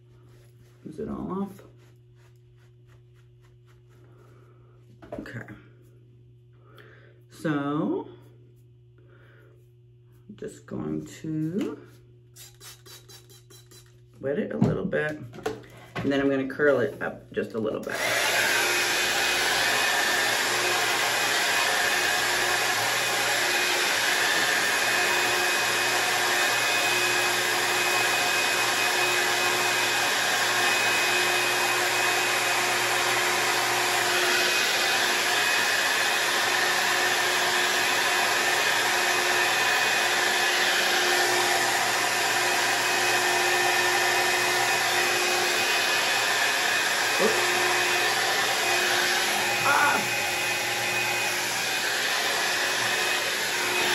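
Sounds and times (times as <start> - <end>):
hot air brush dryer blowing: 17.8 - 53.9.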